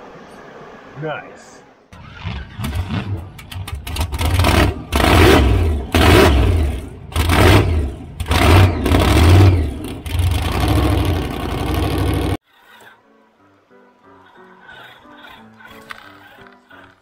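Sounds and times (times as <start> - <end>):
rc truck motor whirring: 2.0 - 13.0, 14.6 - 17.0.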